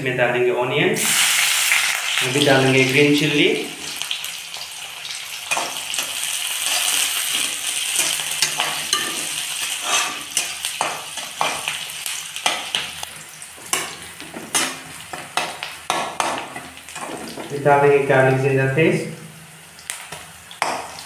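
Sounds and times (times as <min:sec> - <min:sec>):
onions sizzling in hot oil: 0:01.0 - 0:21.0
spatula scraping and knocking pan: 0:05.5 - 0:13.0, 0:13.6 - 0:17.5.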